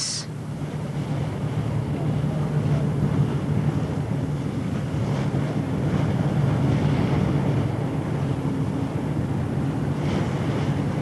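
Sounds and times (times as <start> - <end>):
low steady drone: 0.0 - 2.0
rushing water: 0.0 - 11.0.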